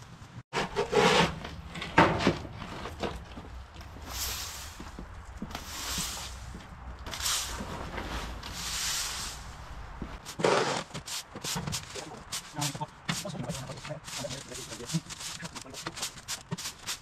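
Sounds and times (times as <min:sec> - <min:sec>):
broom sweeping sandy path: 0:03.8 - 0:17.0.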